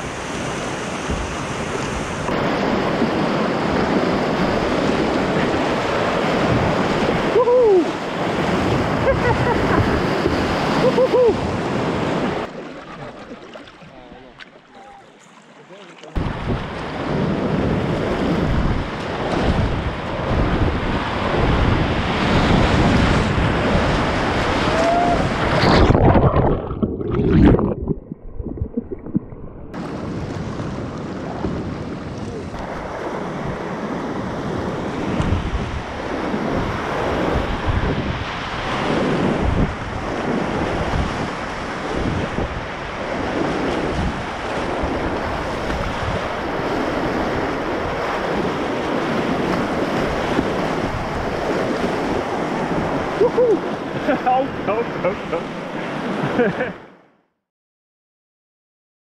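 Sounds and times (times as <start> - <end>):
wind buffeting microphone: 0.0 - 12.5, 16.2 - 54.0
whitewater rapids rushing: 22.8 - 26.0.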